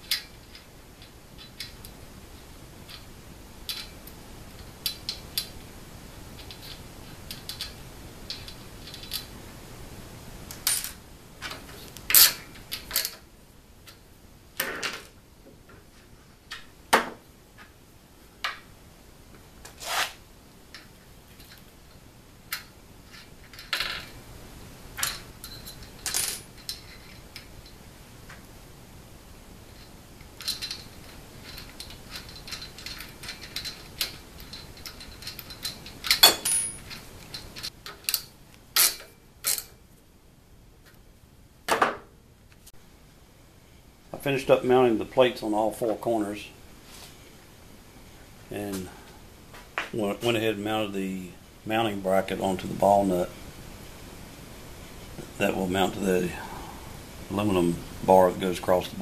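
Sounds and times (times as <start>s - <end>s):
metal bolts clicking and scraping: 0.0s - 2.0s, 2.8s - 5.6s, 6.3s - 9.3s, 25.0s - 27.8s, 29.7s - 39.8s.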